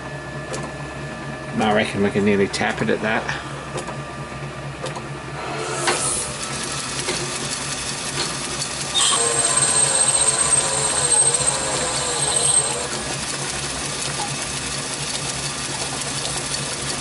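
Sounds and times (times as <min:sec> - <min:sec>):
lathe drilling brass with whine: 0:05.4 - 0:17.0.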